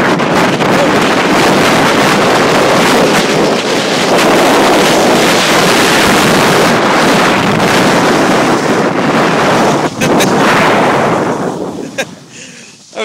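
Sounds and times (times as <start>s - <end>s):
wind over microphone: 0.0s - 13.0s.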